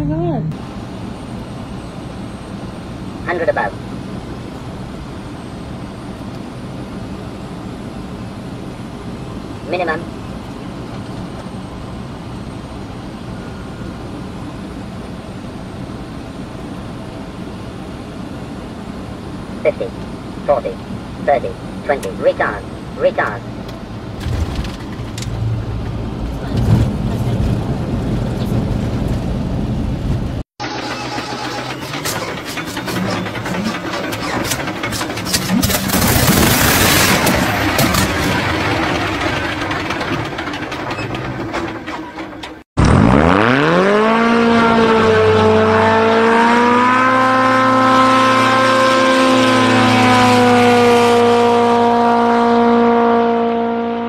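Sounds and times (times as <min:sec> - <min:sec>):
airflow and engine noise in cockpit: 0:00.0 - 0:54.0
piston aero engine starting: 0:30.6 - 0:44.3.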